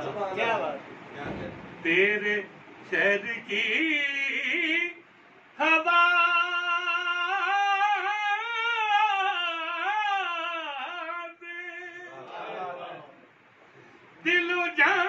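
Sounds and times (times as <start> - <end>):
man singing: 1.8 - 5.0, 5.6 - 12.2, 14.2 - 15.0.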